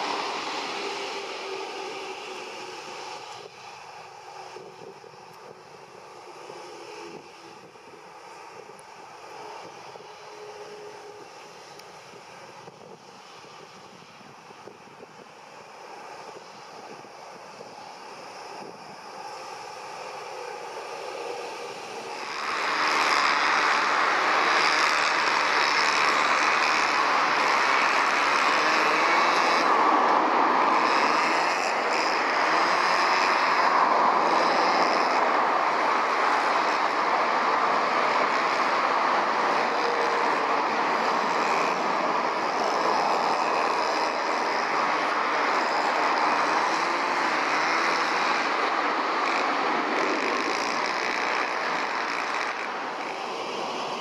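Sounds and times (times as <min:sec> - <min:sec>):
faint high whine: 0:00.0 - 0:54.0
jet engines at takeoff power: 0:00.0 - 0:54.0.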